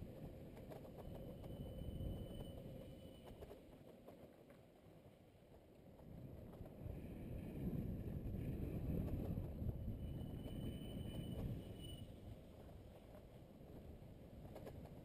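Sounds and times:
faint high whine: 0.0 - 4.2, 7.6 - 14.7
wind on microphone: 6.0 - 12.4.

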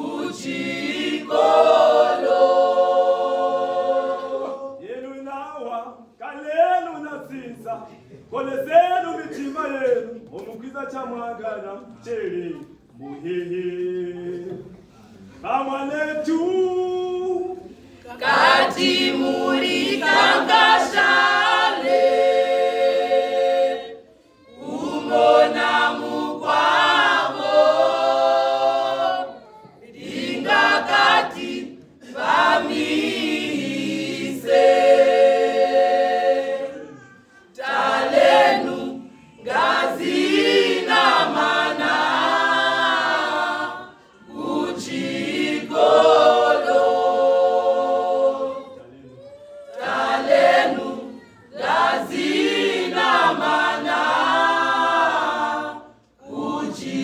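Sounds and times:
choir singing a cappella: 0.0 - 5.2, 12.2 - 57.0.

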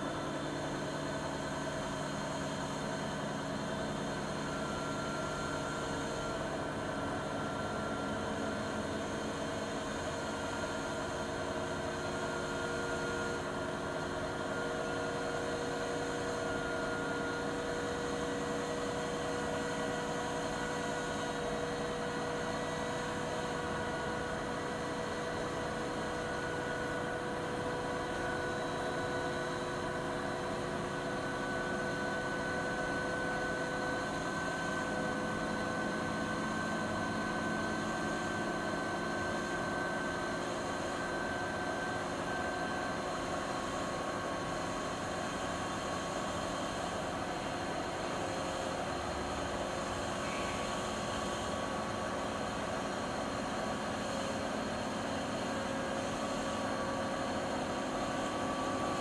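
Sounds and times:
washing machine spin cycle: 0.0 - 59.0.

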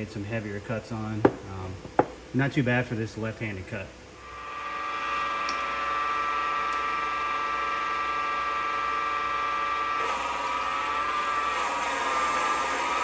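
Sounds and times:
lathe whining: 4.2 - 13.0.

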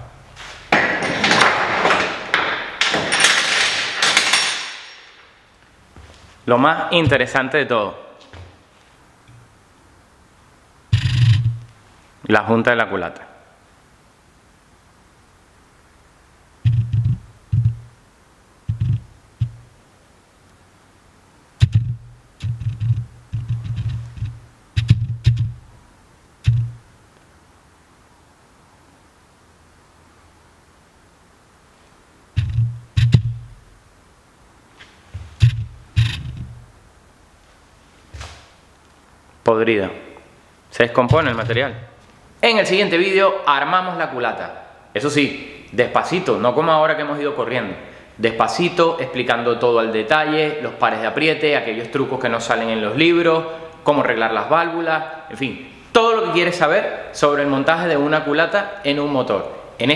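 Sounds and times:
metal parts knocking on workbench: 0.7 - 5.2
metal parts rattling: 2.8 - 5.2
bass-heavy beats: 10.9 - 11.7, 16.6 - 17.9, 18.7 - 19.7, 21.6 - 25.7, 26.4 - 26.8, 32.4 - 33.6, 35.3 - 36.6, 41.0 - 41.9.

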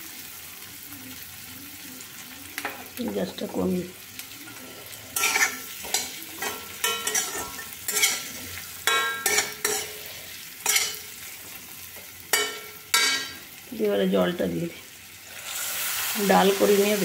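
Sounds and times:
oil sizzling: 0.0 - 17.0
metal spatula scraping pan: 4.5 - 11.3.

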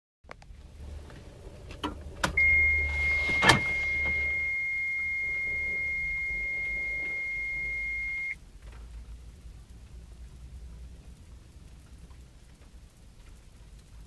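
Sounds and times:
ignition click: 1.1 - 8.4
dashboard warning buzzer beep: 2.4 - 8.4.

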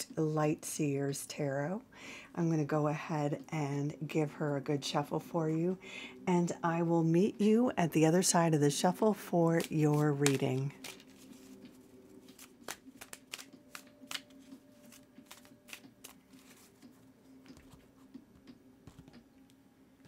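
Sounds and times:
faint steady hum: 0.0 - 20.0
cards being shuffled: 9.6 - 18.1.

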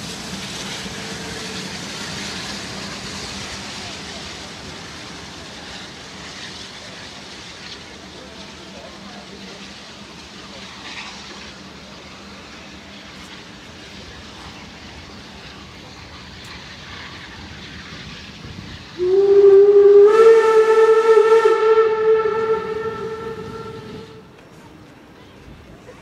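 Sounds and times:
faint rail yard background noise: 0.0 - 26.0
steam locomotive whistle: 19.0 - 24.4.

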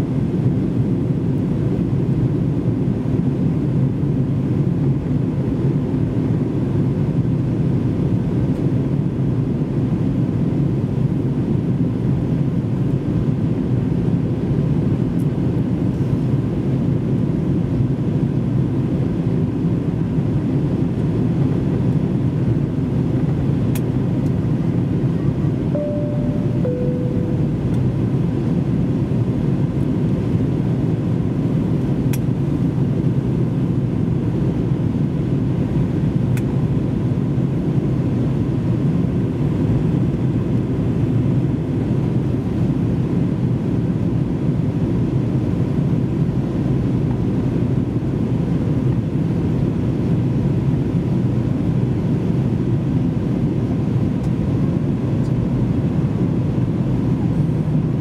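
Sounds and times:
airplane cabin airflow and engines: 0.0 - 58.0
faint steady tone: 25.2 - 28.3.

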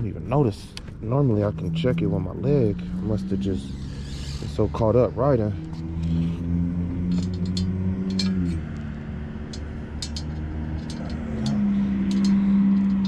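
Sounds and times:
light clicks and rattles: 7.1 - 8.9, 9.5 - 13.0
small engine idling: 7.1 - 13.0.

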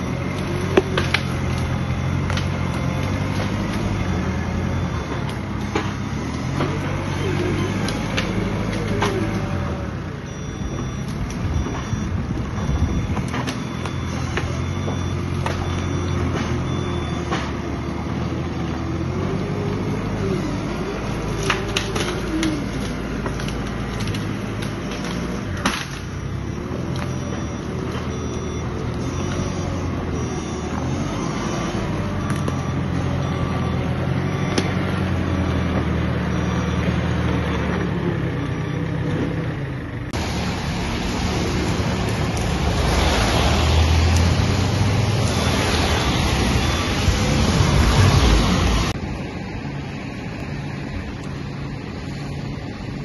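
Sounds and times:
diesel engine working: 0.0 - 53.0
car passing by: 40.2 - 49.0.

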